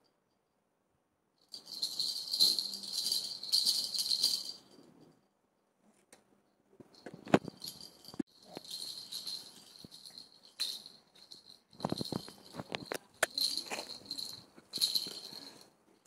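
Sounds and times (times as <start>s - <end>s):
baby rattle jingling: 1.5s - 5.1s, 7.0s - 15.8s.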